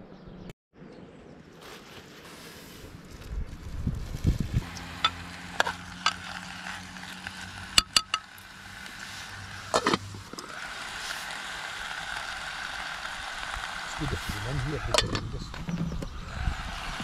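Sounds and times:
stove hissing: 3.7s - 17.0s
food sizzling in pan: 4.2s - 14.5s.

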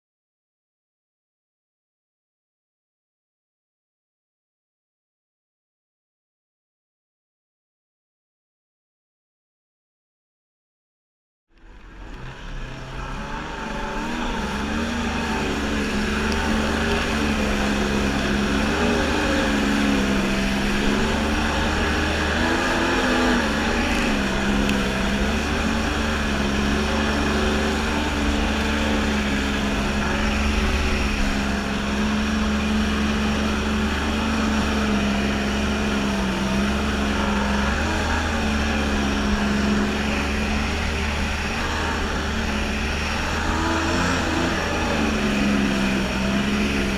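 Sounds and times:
jet ski engine drone: 11.6s - 46.9s.

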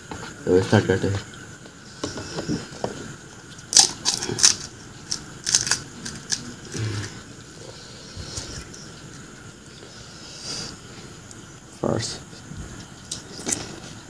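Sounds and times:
fried shells crackling: 3.4s - 9.8s.

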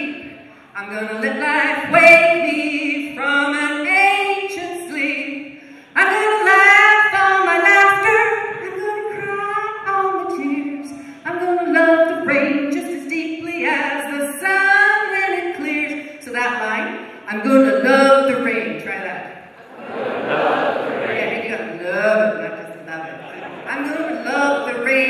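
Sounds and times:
woman singing: 0.0s - 5.4s, 6.0s - 19.2s
group of voices singing: 19.7s - 21.5s.

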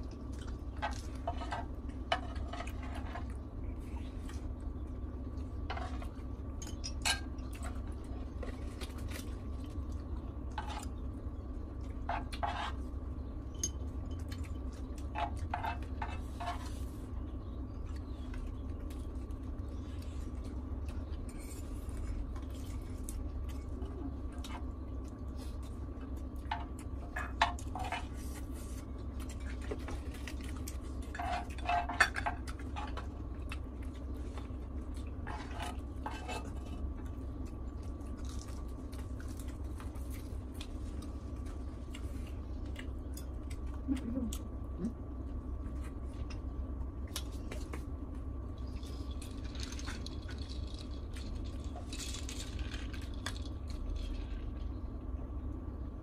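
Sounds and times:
steady low hum: 0.0s - 56.0s
spoons scraping a grill pan: 12.1s - 12.8s.

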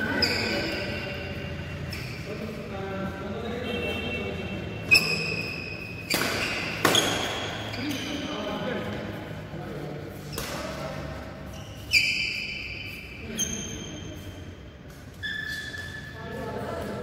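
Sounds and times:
rackets hitting shuttlecock: 4.8s - 8.3s, 10.2s - 11.2s.

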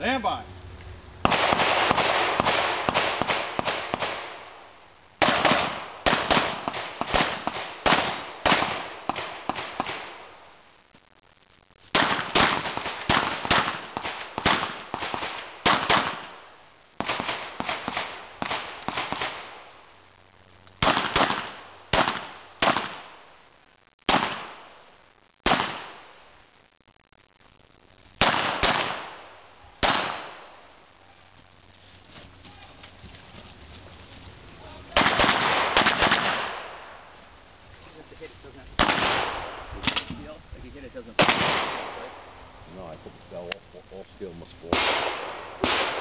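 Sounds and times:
pistol shots with echo: 1.2s - 4.4s, 5.2s - 10.2s, 12.0s - 16.4s, 20.8s - 23.1s, 24.1s - 24.7s, 25.4s - 26.0s, 28.2s - 30.6s, 35.0s - 36.9s, 38.8s - 40.0s, 41.2s - 42.3s, 44.7s - 46.0s.

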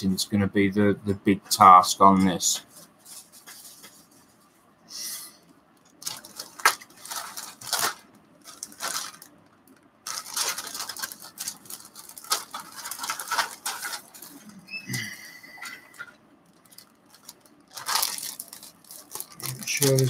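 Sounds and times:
plastic bag crinkling: 5.8s - 14.6s, 15.5s - 20.0s.

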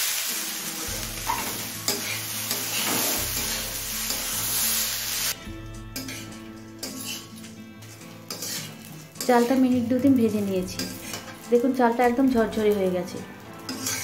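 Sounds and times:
rice sizzling in oil: 0.0s - 14.0s
spatula scraping pan: 0.9s - 4.8s, 5.9s - 11.6s, 13.6s - 14.0s.

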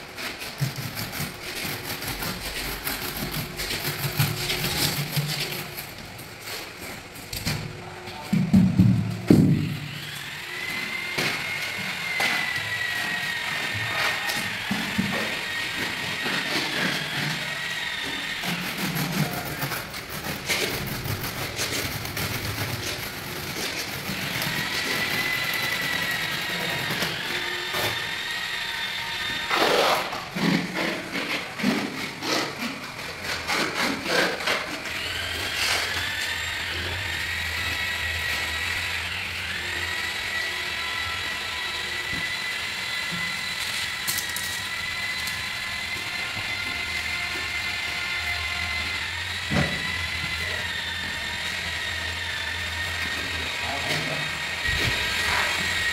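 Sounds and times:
trowel scraping wet mortar: 0.2s - 6.8s, 11.3s - 28.5s
power tool whining: 8.5s - 55.9s.

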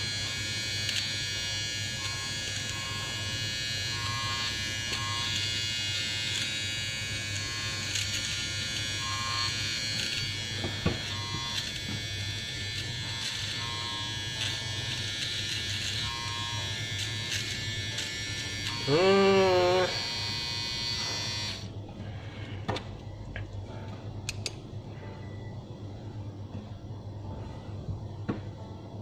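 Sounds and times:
hair trimmer buzzing: 0.0s - 21.7s.

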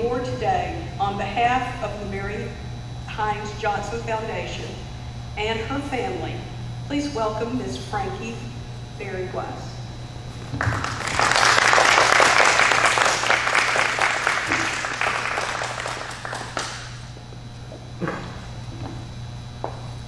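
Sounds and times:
audience applauding: 10.5s - 17.1s.

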